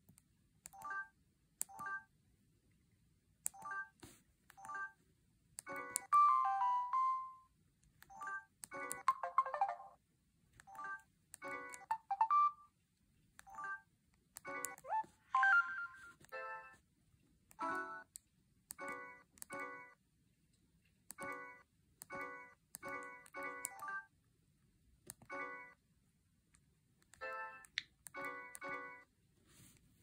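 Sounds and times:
key-press beeps: 0:04.5 - 0:05.0.

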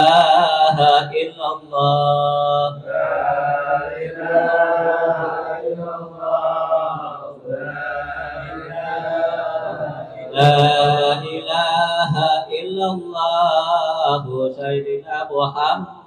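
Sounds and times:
man leading chant through microphone: 0:00.0 - 0:16.0
men chanting in unison: 0:00.0 - 0:16.0.

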